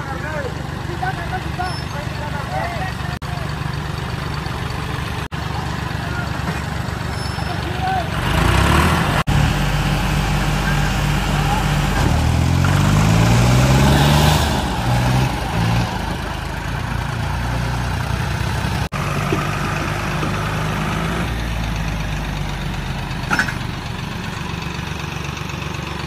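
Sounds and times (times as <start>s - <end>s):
diesel tractor engines under load: 0.0s - 26.0s.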